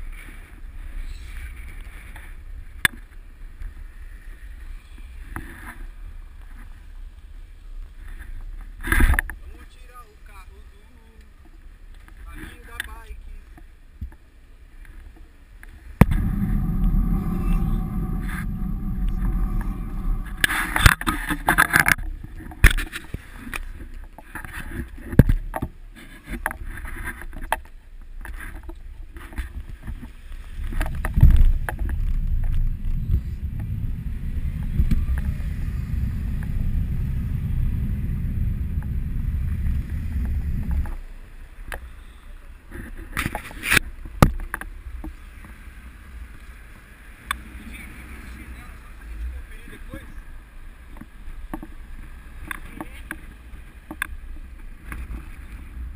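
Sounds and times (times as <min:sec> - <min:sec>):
wind buffeting microphone: 0:15.9 - 0:23.9, 0:29.3 - 0:41.5.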